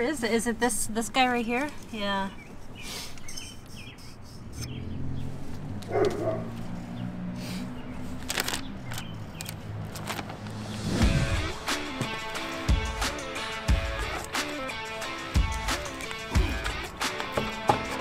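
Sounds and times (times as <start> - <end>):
small birds chirping: 1.6 - 9.8.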